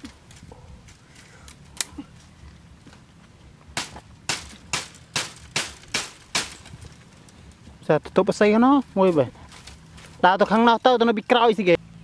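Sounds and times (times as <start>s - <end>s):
knife chopping into grass: 3.8s - 6.6s.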